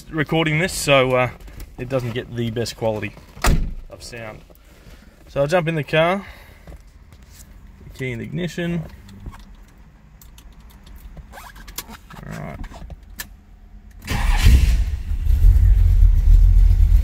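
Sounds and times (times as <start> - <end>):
keys clicking in ignition: 8.9 - 12.0
car engine starting and idling: 13.0 - 17.0.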